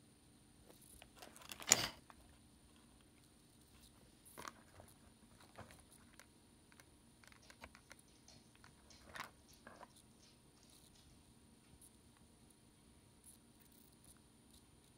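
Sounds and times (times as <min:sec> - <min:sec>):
faint clicks and ticks: 0:02.7 - 0:12.6.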